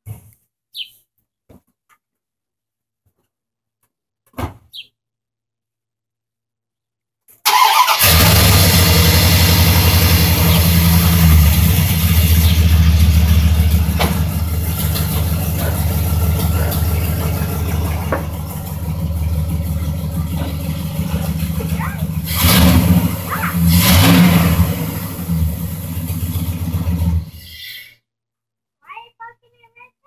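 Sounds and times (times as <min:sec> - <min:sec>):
truck engine starting and idling: 0:07.4 - 0:27.6.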